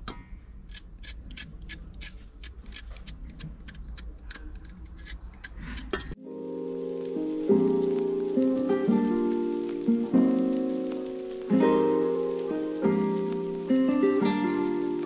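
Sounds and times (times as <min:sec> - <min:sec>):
music: 0:06.2 - 0:15.0.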